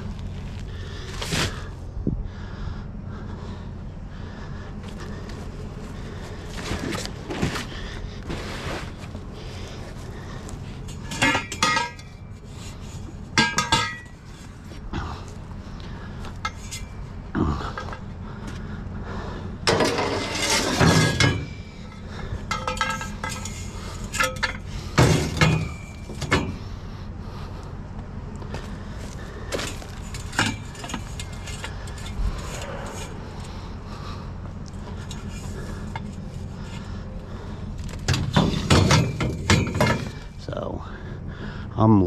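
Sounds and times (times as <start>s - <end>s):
metal tubes clanking: 10.3s - 15.3s, 16.2s - 18.2s, 19.6s - 26.8s, 29.0s - 40.6s.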